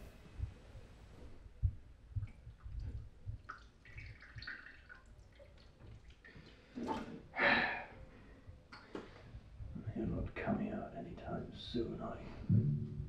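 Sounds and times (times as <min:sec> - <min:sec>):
water splashing in sink: 0:02.2 - 0:07.3.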